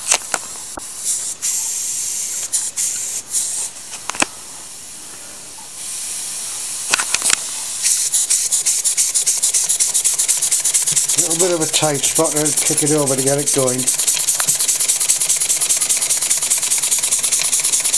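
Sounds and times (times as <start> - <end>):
model steam engine hissing: 1.0 - 3.8, 7.7 - 17.9
engine exhaust beats: 9.2 - 16.4.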